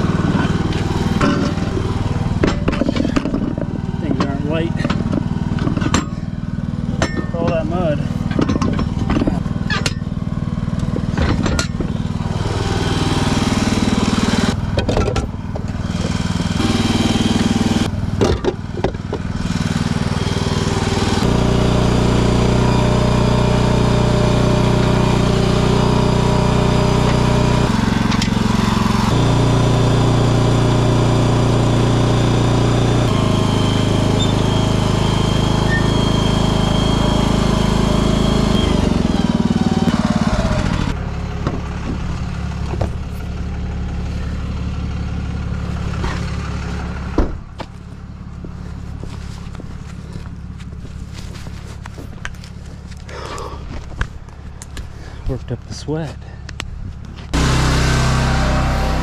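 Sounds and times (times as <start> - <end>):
engine running: 0.0 - 59.0
sharp clicks and knocks: 0.4 - 6.2, 7.0 - 10.1, 10.8 - 12.0, 14.7 - 16.2.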